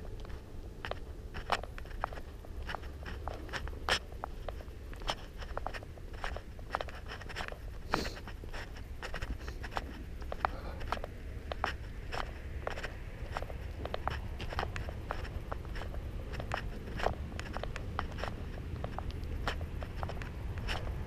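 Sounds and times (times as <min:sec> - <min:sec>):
footsteps crunching on path: 0:00.0 - 0:21.0
low steady rumble: 0:00.0 - 0:21.0.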